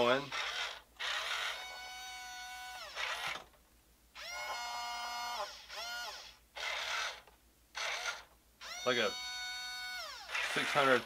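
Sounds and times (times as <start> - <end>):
electric motor whining: 0.3 - 3.5, 4.2 - 7.2, 7.8 - 11.0
harsh buzzes: 7.8 - 11.0.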